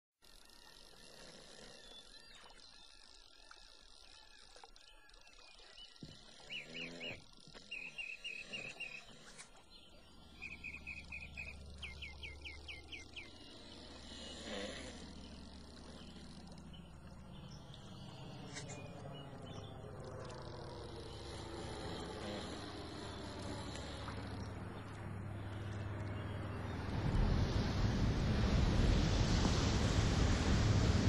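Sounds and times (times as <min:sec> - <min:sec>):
bird chirping: 0:01.8 - 0:14.4
low drone of aircraft: 0:10.0 - 0:31.0.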